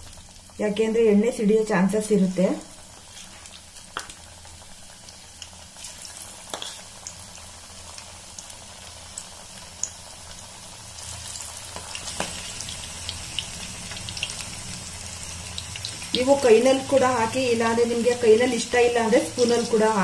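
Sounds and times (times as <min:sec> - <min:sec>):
chicken deep-frying in hot oil: 0:00.0 - 0:20.0.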